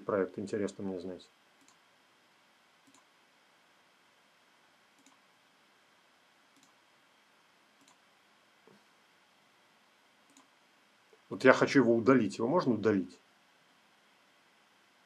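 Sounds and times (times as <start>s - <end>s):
faint computer mouse clicks: 1.6s - 1.8s, 2.8s - 3.1s, 5.0s - 5.2s, 6.5s - 6.8s, 7.8s - 8.0s, 10.2s - 10.5s.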